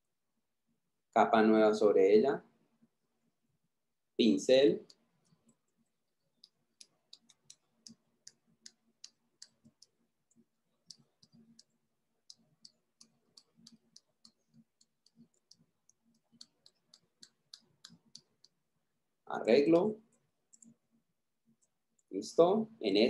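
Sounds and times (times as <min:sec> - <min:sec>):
computer mouse clicks: 0:04.8 - 0:18.6, 0:19.7 - 0:20.8.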